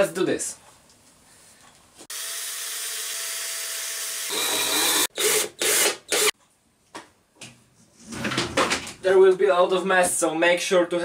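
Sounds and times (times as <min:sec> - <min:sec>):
cordless drill driving a screw: 0:02.1 - 0:06.4.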